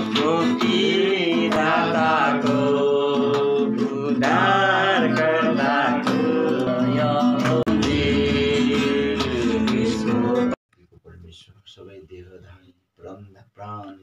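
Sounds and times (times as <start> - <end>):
person singing with accompaniment: 0.0 - 10.6.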